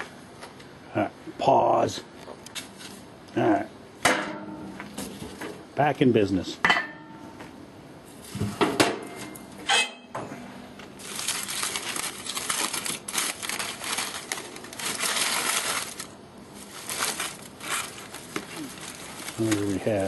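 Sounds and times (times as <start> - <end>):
aluminium foil crinkling: 11.0 - 20.0.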